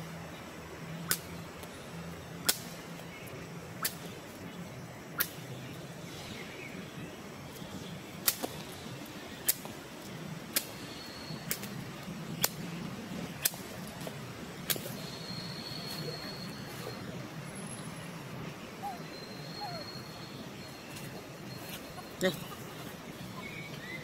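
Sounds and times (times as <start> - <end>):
faint steady background noise: 0.0 - 24.0
sharp loud clicks: 2.4 - 2.8, 5.2 - 5.4, 8.2 - 8.6, 12.4 - 12.7, 13.4 - 13.7
thin high steady tone: 14.3 - 24.0.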